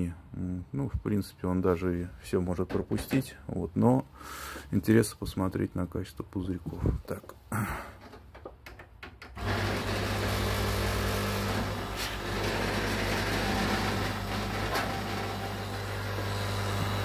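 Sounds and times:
air compressor humming: 9.4 - 17.0.

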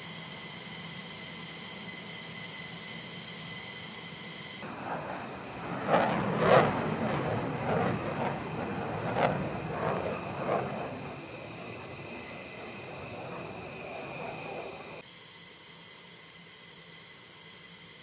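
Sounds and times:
high-pitched machinery whine: 0.0 - 18.0
low machinery rumble: 4.6 - 15.0.

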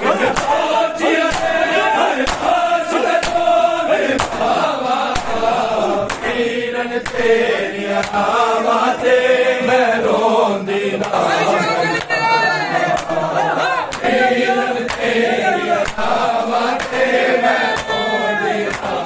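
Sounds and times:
crowd of men chanting: 0.0 - 19.0
hands slapping bare chests: 0.2 - 8.4, 11.0 - 11.3, 12.9 - 19.0.

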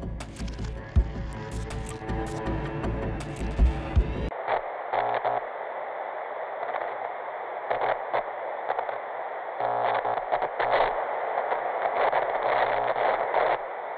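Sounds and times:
crackling static hiss: 4.3 - 13.9.

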